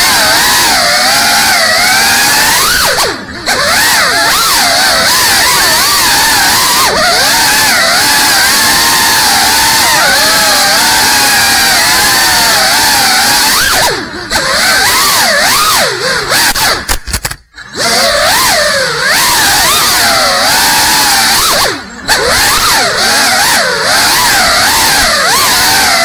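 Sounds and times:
drone propellers whining: 0.0s - 26.0s.

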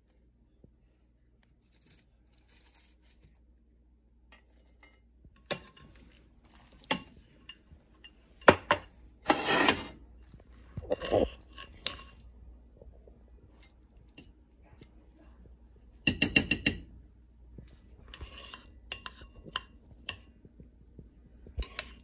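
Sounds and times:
ceramic dishes clinking: 4.4s - 6.0s, 6.8s - 10.0s, 18.1s - 20.3s, 21.6s - 22.0s.

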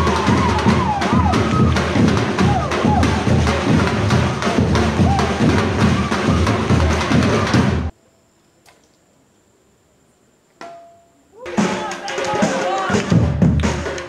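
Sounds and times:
drum ensemble playing fast rhythm: 0.0s - 7.9s, 11.4s - 14.0s.

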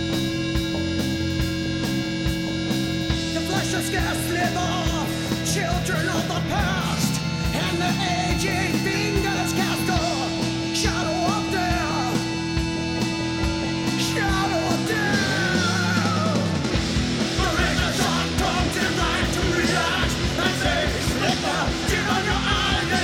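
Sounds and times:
electric guitar: 0.0s - 23.0s
live rock band playing: 0.0s - 23.0s
drumbeat: 12.5s - 23.0s.

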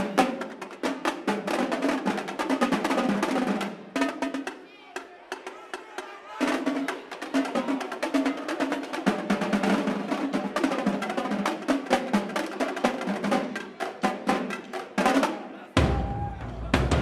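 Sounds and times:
snare and tenor drums playing: 6.4s - 17.0s.

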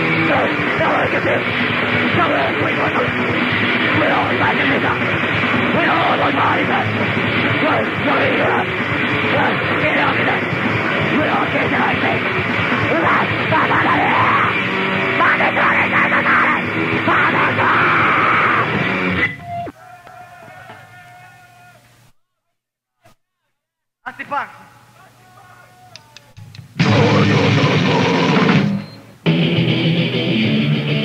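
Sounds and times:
grindcore band playing: 0.0s - 19.3s, 26.8s - 31.0s.

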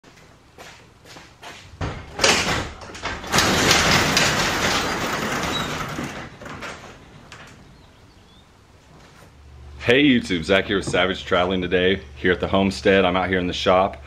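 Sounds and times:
garage door clanking: 1.7s - 8.0s
garage door rattling up tracks: 1.7s - 8.1s.

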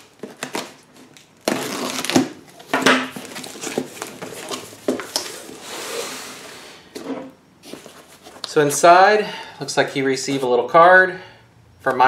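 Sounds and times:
cardboard flaps rustling: 0.0s - 6.4s, 7.0s - 8.9s
packing tape pulled off box: 0.0s - 6.7s.

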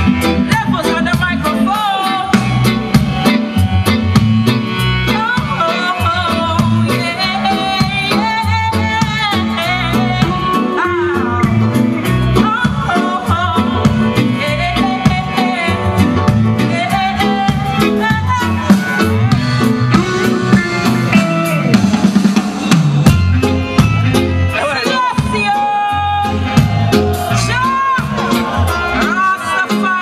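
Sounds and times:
bass line: 0.0s - 30.0s
drum kit: 0.0s - 30.0s
guitar: 0.0s - 30.0s
keyboards: 0.0s - 30.0s
woman singing: 0.4s - 2.9s, 5.1s - 21.0s, 27.3s - 30.0s.

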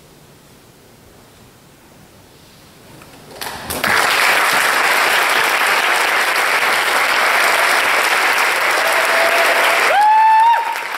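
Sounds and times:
audience applause: 3.4s - 10.9s.

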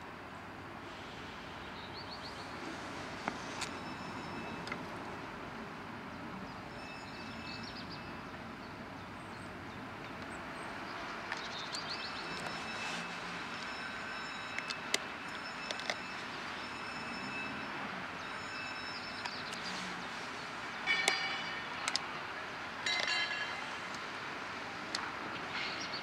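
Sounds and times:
train rumble and hiss: 0.0s - 4.5s.

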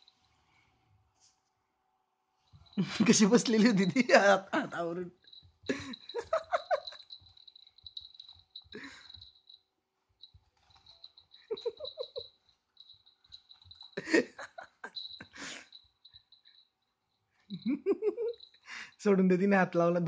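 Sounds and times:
person chuckling softly: 5.7s - 7.1s, 8.8s - 9.2s, 11.4s - 12.2s, 14.0s - 15.7s, 17.5s - 18.9s.

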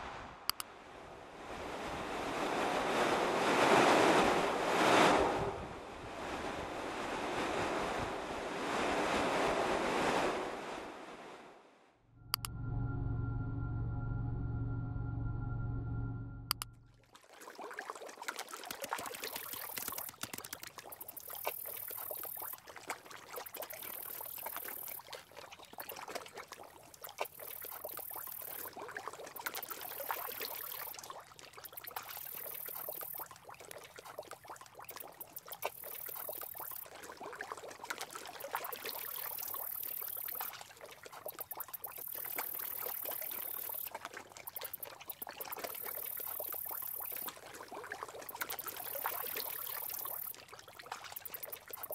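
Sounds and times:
stream trickling and babbling: 16.6s - 51.9s.

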